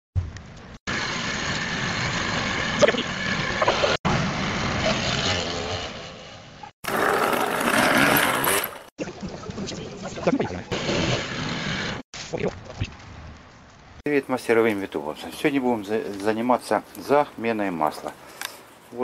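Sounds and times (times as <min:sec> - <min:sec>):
scooter engines running: 0:00.9 - 0:08.9.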